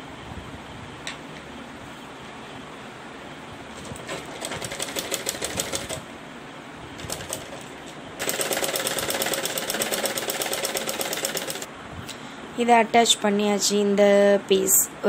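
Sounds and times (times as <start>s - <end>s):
sewing machine clicks: 4.0s - 6.0s, 7.0s - 11.7s
sewing machine stitching: 4.0s - 6.0s, 7.0s - 11.7s.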